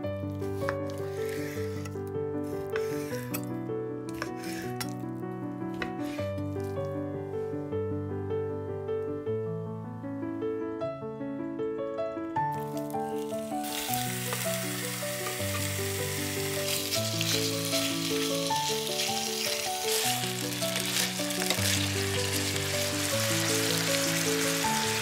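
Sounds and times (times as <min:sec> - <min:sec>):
soft piano music: 0:00.0 - 0:25.0
chicken sizzling in hot oil: 0:12.6 - 0:25.0.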